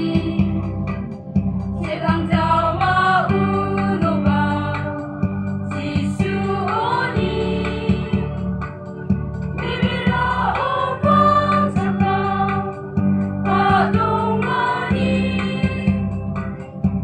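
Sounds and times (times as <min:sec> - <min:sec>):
women's choir singing: 0:00.0 - 0:00.6, 0:01.8 - 0:05.0, 0:05.8 - 0:08.4, 0:09.6 - 0:16.0
low instrumental accompaniment: 0:00.0 - 0:17.0.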